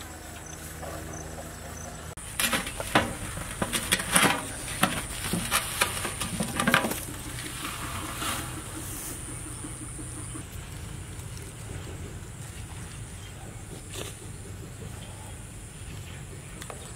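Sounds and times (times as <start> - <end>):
low engine-like hum: 0.0 - 16.9
metal scraping: 2.2 - 10.4.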